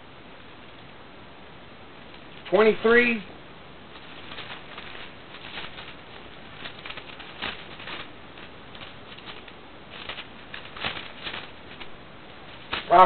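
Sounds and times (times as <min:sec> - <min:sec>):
steady hiss: 0:00.0 - 0:13.0
pages rustling: 0:03.9 - 0:13.0.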